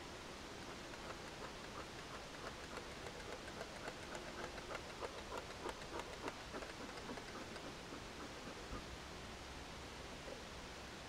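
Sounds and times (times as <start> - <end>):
steady low hiss: 0.0 - 11.0
bee smoker clicks and puffs: 0.6 - 8.8.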